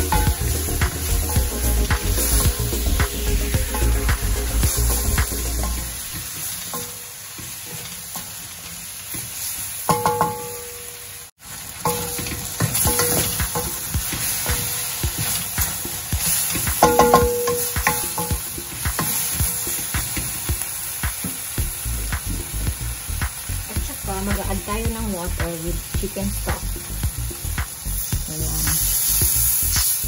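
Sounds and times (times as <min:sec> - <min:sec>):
frying sizzle: 0:00.0 - 0:30.0
spatula knocking against pan: 0:09.9 - 0:10.6, 0:11.8 - 0:21.4.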